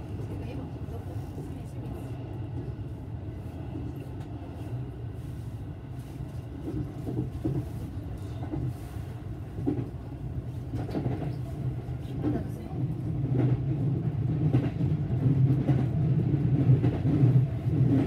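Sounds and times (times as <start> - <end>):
train wheels rumbling on rails: 3.8 - 18.0.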